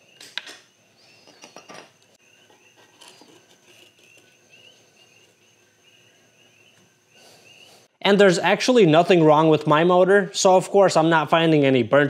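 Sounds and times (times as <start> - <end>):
bird chirps: 0.9 - 7.9.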